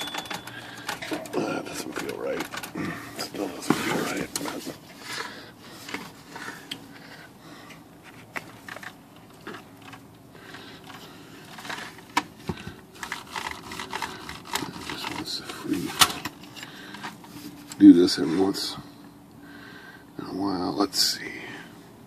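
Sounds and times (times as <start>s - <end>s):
typewriter mechanism clicking: 0.0s - 1.4s.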